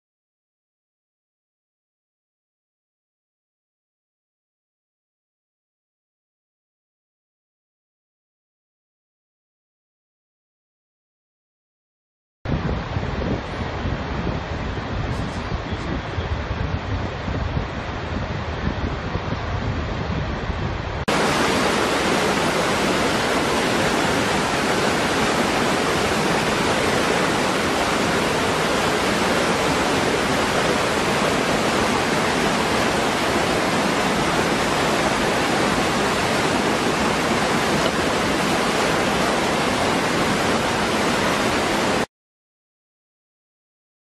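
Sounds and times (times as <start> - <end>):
waterfall rushing: 21.1 - 42.1.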